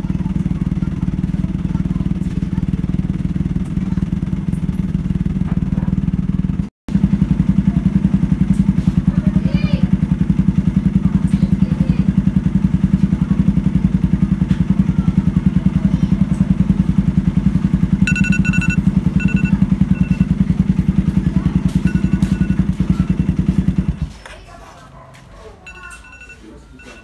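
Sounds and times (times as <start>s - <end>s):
motorcycle engine idling: 0.0s - 27.0s
phone timer alarm beeping: 18.1s - 20.4s, 21.8s - 23.3s, 25.7s - 27.0s.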